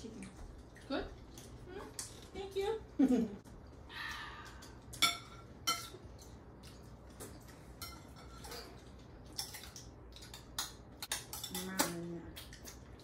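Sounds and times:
plates and cutlery clinking: 4.6 - 6.4, 7.1 - 12.0.

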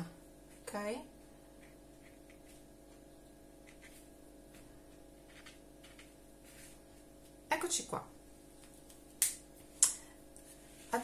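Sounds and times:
low room hum: 0.0 - 11.0
marker pen scratching on paper: 3.6 - 6.8.

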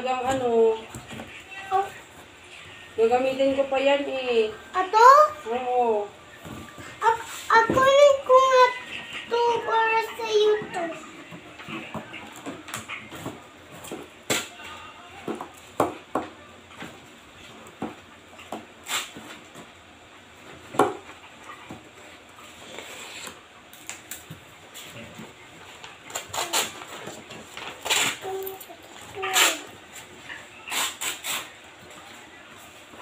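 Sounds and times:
paper rustling and crinkling: 24.8 - 29.6.

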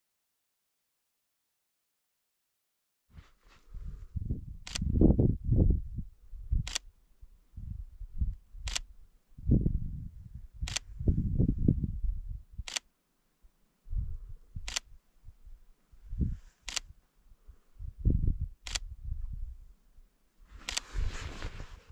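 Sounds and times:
rustling noise: 3.1 - 5.0, 20.4 - 21.9
sharp clicks: 6.6 - 6.9, 8.6 - 8.9, 10.6 - 10.9, 12.6 - 12.9, 14.6 - 14.9, 16.6 - 16.9, 18.6 - 18.9.

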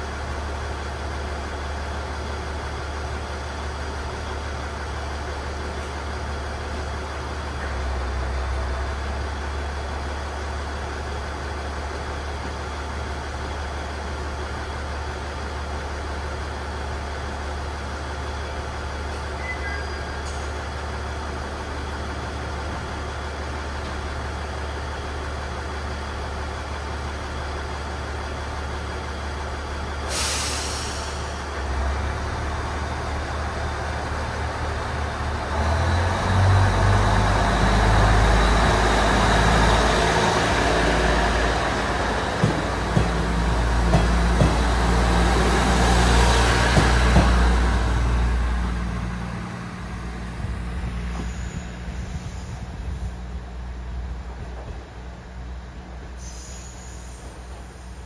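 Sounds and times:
diesel railcar engine idling: 0.0 - 58.0
air brake hiss: 30.1 - 31.5, 56.1 - 58.0.

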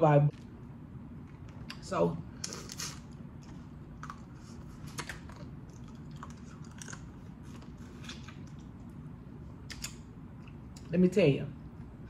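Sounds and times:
person chewing with wet smacks: 2.4 - 9.0, 9.6 - 10.9.

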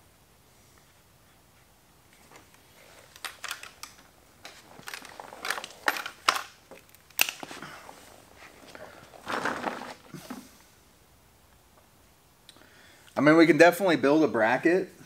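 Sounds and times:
plastic parts clicking and rattling: 2.4 - 7.6.

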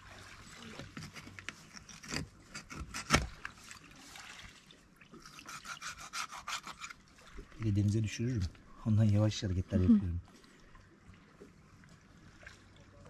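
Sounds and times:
knife scraping and cutting fish: 0.7 - 3.6, 5.2 - 7.0.

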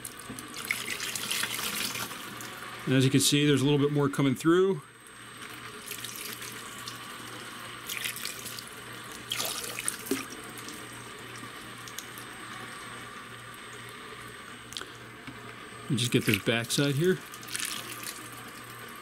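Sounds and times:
water pouring and trickling: 0.4 - 2.5, 5.8 - 7.1, 7.8 - 12.2, 16.0 - 19.0
water splashes: 9.3 - 10.8.

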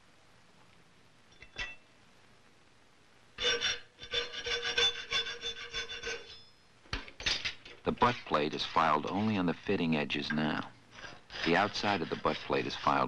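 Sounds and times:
file rasping on metal: 3.4 - 6.4, 11.0 - 13.0.

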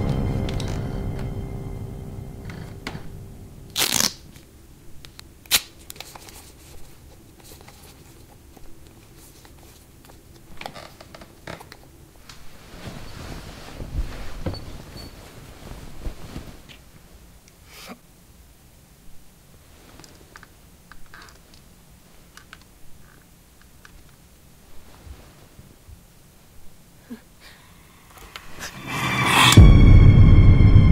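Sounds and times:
scary music: 0.0 - 4.0, 28.0 - 30.9
bedding rustling: 12.2 - 17.4, 24.2 - 26.8
scraping rustle: 12.4 - 17.0.

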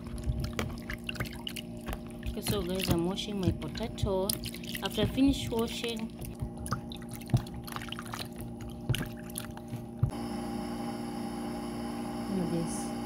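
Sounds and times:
water splashing in a bowl: 0.0 - 10.1
steady low hum: 0.0 - 13.0.

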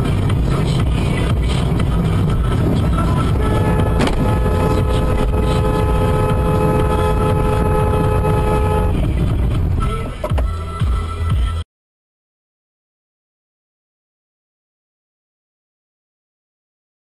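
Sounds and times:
engine and road rumble: 0.0 - 11.6
car horn blast: 3.2 - 9.2.

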